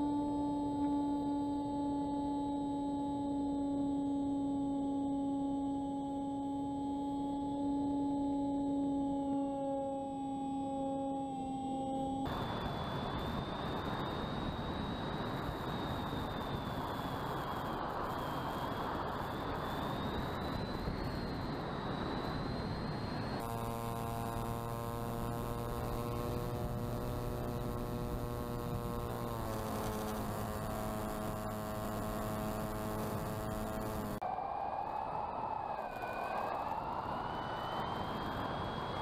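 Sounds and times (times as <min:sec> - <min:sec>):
electric motor buzzing hum: 0:00.0 - 0:14.0, 0:23.3 - 0:34.2
electric motor whine: 0:00.0 - 0:34.3.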